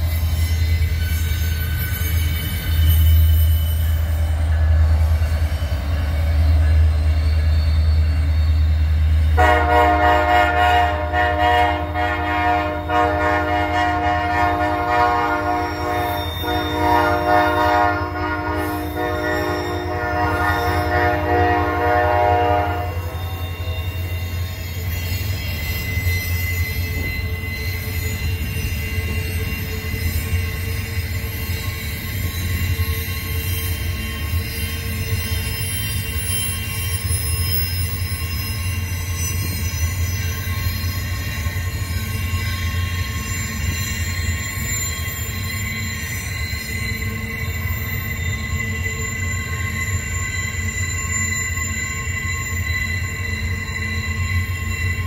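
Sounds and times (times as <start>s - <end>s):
freight train rumbling: 0.0s - 55.0s
locomotive air horn chord: 9.4s - 23.6s.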